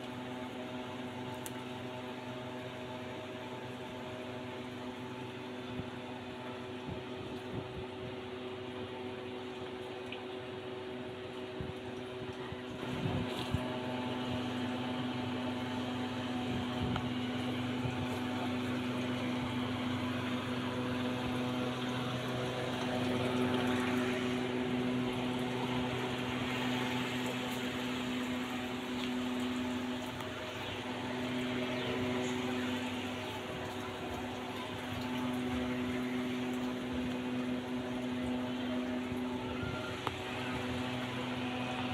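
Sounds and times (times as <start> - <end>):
motor humming: 0.0 - 41.9.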